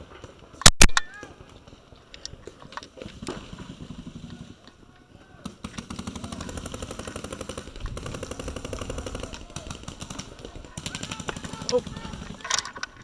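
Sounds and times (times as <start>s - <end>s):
paintball markers rapid firing: 5.4s - 12.8s.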